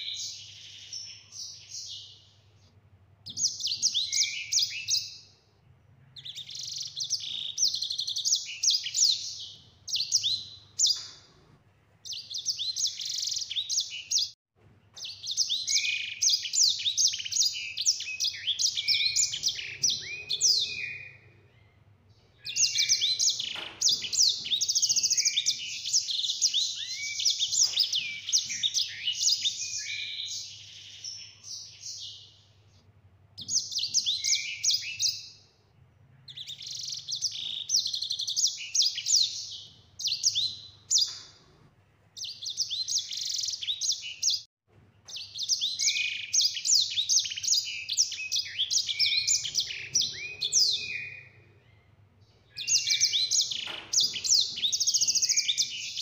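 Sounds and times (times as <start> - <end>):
finch singing high twittering: 3.3 - 5.3, 6.1 - 11.3, 12.0 - 14.4, 15.0 - 21.7, 22.3 - 32.4, 33.4 - 35.4, 36.2 - 41.4, 45.1 - 51.8, 52.5 - 56.0.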